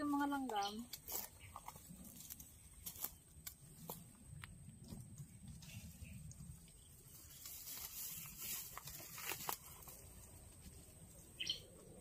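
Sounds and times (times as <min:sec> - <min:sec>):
rustling leaves and twigs: 0:00.0 - 0:12.0
twigs snapping: 0:00.5 - 0:04.6, 0:07.3 - 0:10.0.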